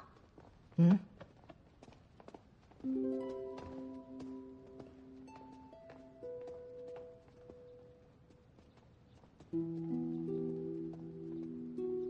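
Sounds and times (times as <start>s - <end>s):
slow background melody: 2.8s - 8.2s, 9.5s - 12.0s.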